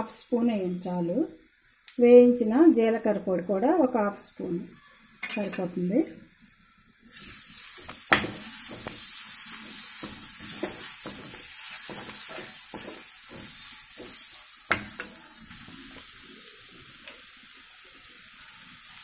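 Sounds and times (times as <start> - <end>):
paste sizzling in oil: 6.8 - 19.0
steel spoon scraping pan: 7.1 - 15.8
spoon knocking on pan: 7.8 - 15.8.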